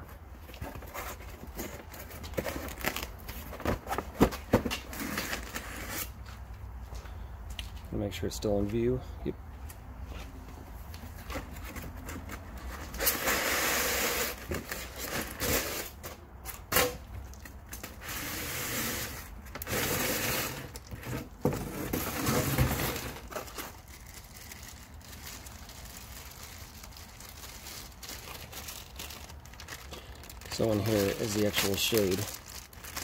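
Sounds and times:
cardboard and foam scraping: 0:00.0 - 0:06.2, 0:18.0 - 0:23.8, 0:29.9 - 0:33.0.

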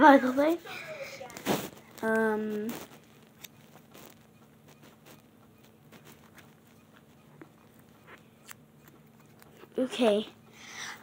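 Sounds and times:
faint steady hum: 0:00.0 - 0:11.0
soft clicks and rustles: 0:01.2 - 0:09.8.

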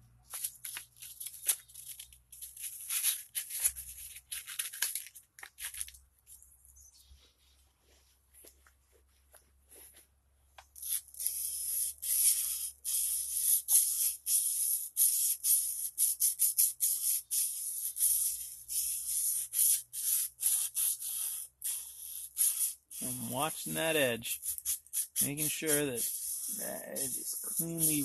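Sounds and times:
axe scraping over sandpaper: 0:22.0 - 0:28.0.

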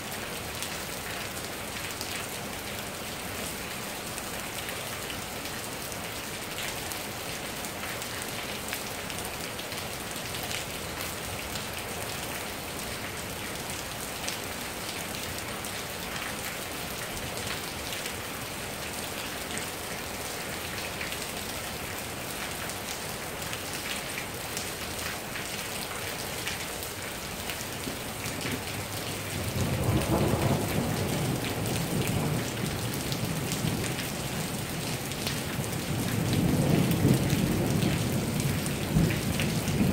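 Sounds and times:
steady rain falling: 0:00.0 - 0:39.9
low roll of thunder: 0:29.5 - 0:32.6.

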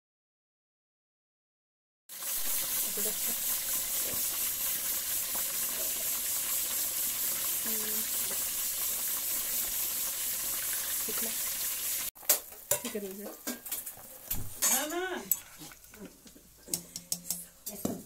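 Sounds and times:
pot boiling hiss: 0:02.1 - 0:18.0
spatula clicking on frying pan: 0:16.7 - 0:17.8.

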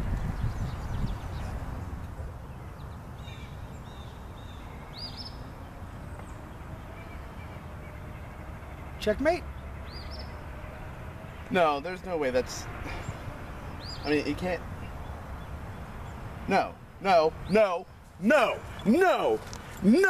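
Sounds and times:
wind rumbling on microphone: 0:00.0 - 0:08.8.

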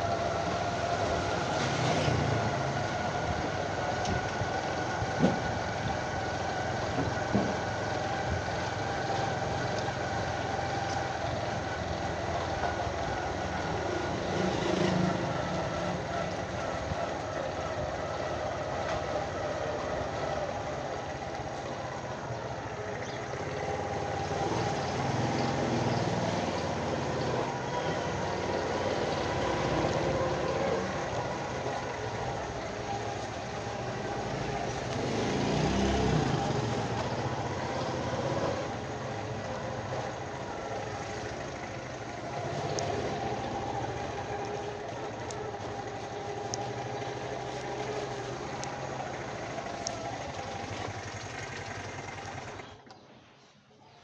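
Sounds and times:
motorcycle engine running: 0:02.7 - 0:52.9.

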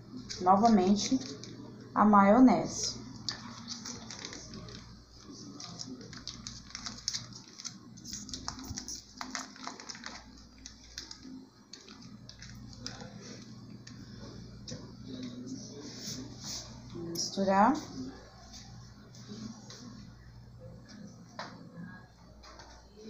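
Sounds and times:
plastic sachet crinkling: 0:00.1 - 0:01.7, 0:03.2 - 0:14.4.

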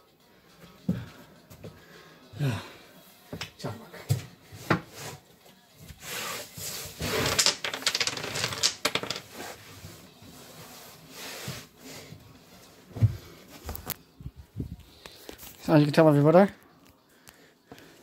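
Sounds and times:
scraping and rubbing: 0:06.0 - 0:11.8.

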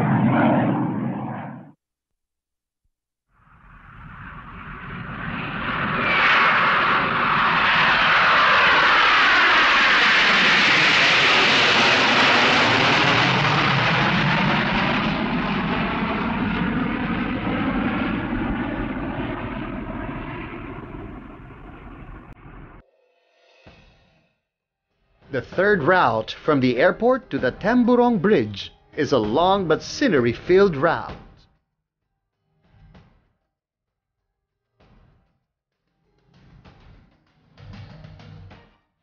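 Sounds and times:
jet airliner passing over: 0:00.0 - 0:01.8, 0:03.6 - 0:22.8.

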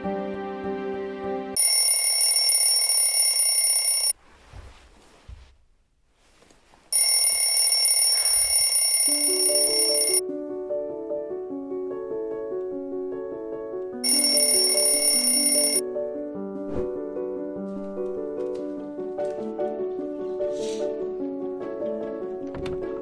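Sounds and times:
soft music: 0:00.0 - 0:02.7, 0:08.9 - 0:23.0
alarm bell ringing: 0:01.6 - 0:04.2, 0:07.0 - 0:10.2, 0:14.0 - 0:15.8.

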